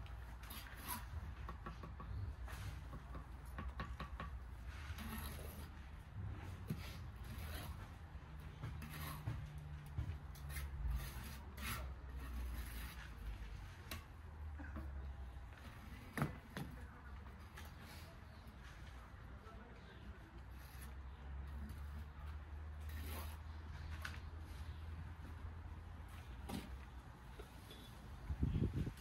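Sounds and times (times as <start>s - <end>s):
trowel scraping through mortar: 0.4s - 1.2s, 4.6s - 5.9s, 6.7s - 8.0s, 8.6s - 9.6s, 10.4s - 13.9s, 22.7s - 24.0s
trowel tapping bricks: 0.6s - 5.4s.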